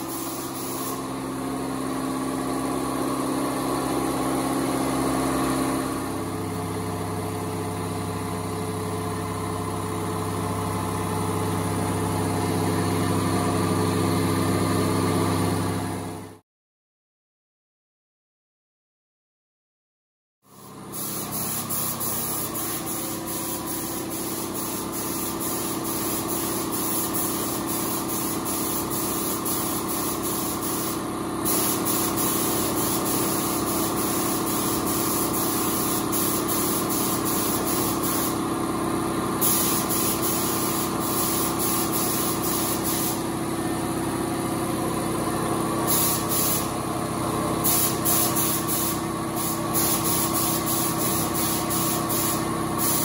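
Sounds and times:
paint spray gun hissing: 0.0s - 1.6s, 20.5s - 43.9s, 45.8s - 53.0s
steady machine hum: 0.0s - 16.3s, 20.5s - 52.9s.

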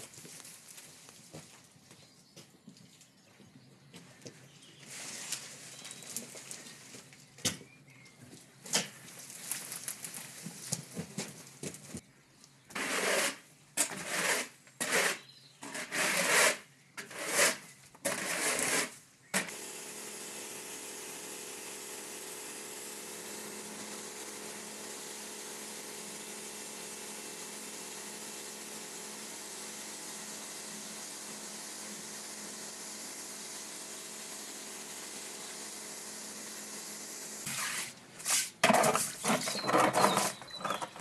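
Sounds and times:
garden tool scraping stone paving: 12.7s - 19.6s, 37.4s - 41.0s
pressure washer running: 19.5s - 37.5s.

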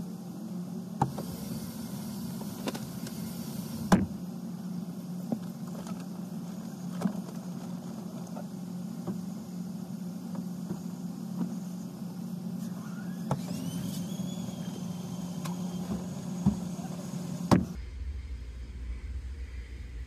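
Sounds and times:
parked car engine humming: 0.0s - 20.0s
hiss: 1.0s - 4.8s, 12.5s - 20.0s
knocks and thumps in car: 3.8s - 4.2s, 10.3s - 11.6s, 15.8s - 16.9s, 17.5s - 17.8s.

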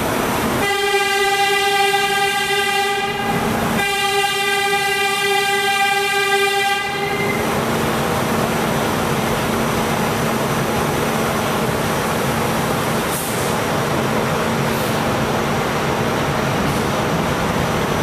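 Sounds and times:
subway train rumbling and rattling: 0.0s - 18.0s
short hiss: 13.1s - 13.6s.

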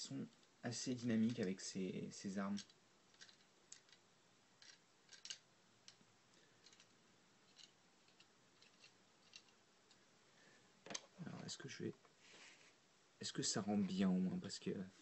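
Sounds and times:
plastic toy joints clicking: 2.5s - 4.0s, 4.6s - 6.0s, 6.6s - 6.9s, 7.5s - 9.6s.

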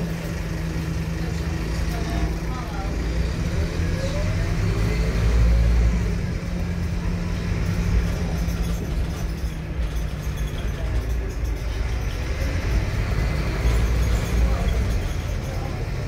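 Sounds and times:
bus diesel engine running: 0.0s - 16.0s
road and engine rumble: 0.0s - 16.0s.

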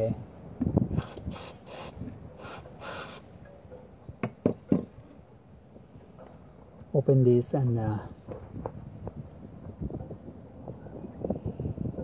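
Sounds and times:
aerosol spray hisses: 0.9s - 3.2s.

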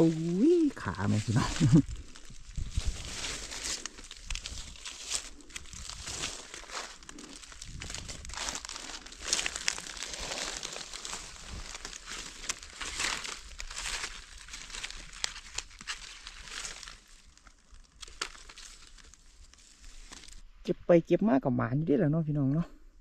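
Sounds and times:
dry leaves rustling and crackling: 0.0s - 20.4s.

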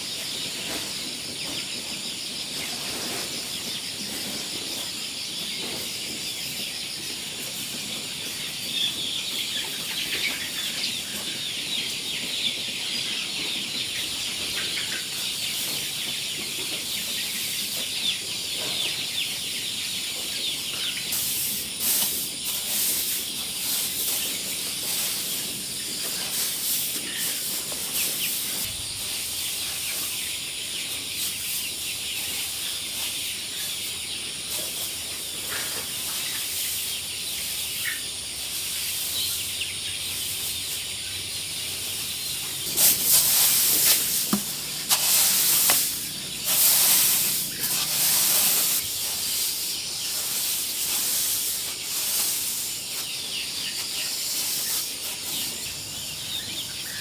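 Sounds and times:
high-pitched hiss: 42.6s - 56.0s.

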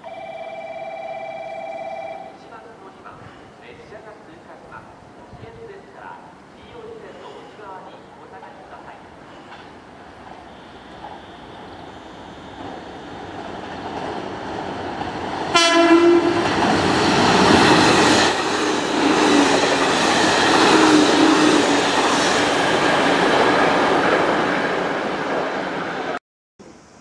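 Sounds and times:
train wheels on rail: 7.0s - 26.2s
train horn blast: 15.5s - 16.4s.

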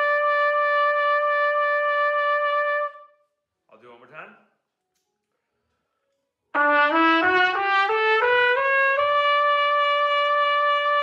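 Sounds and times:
trumpet playing ascending scale: 0.0s - 3.2s, 6.6s - 11.0s.

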